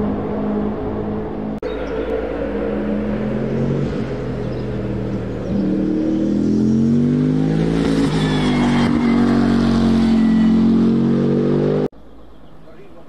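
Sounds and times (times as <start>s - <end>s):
race car engine at full throttle: 0.0s - 11.9s.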